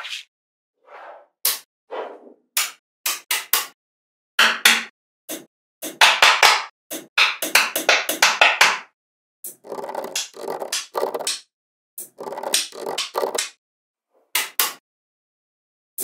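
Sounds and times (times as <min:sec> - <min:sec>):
magnetic balls clicking: 0:09.5 - 0:11.4, 0:12.0 - 0:13.5.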